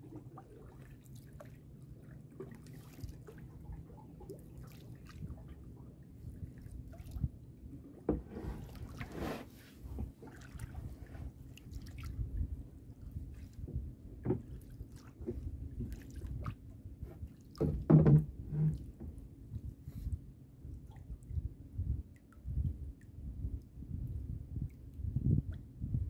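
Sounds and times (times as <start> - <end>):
water lapping against boat hull: 0.0 - 26.0
small knocks: 17.6 - 19.2.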